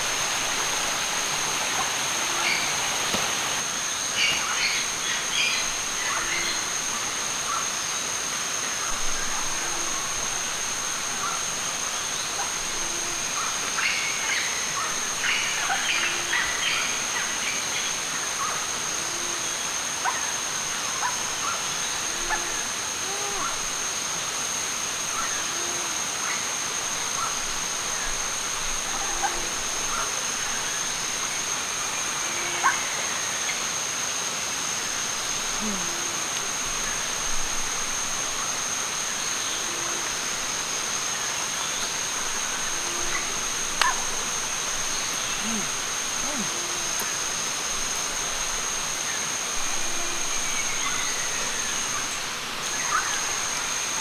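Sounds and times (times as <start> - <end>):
flowing water: 0.0 - 18.9, 19.5 - 54.0
constant high-pitched whine: 0.0 - 54.0.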